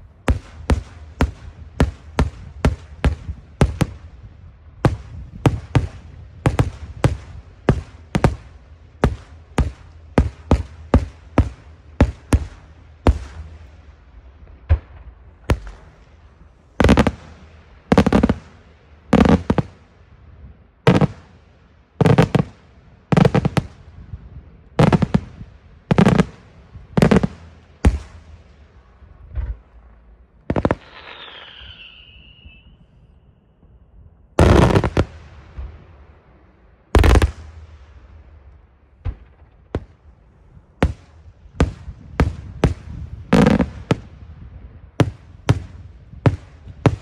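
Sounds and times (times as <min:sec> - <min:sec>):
fireworks bursting with bangs: 0:00.0 - 0:33.2, 0:34.4 - 0:36.2, 0:36.9 - 0:47.0
falling firework whistle: 0:30.5 - 0:33.8.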